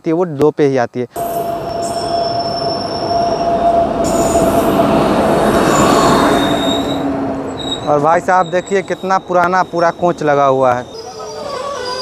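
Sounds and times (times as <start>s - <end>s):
train wheels rumbling on rails: 1.2s - 12.0s
wheels and brakes squealing: 1.2s - 12.0s.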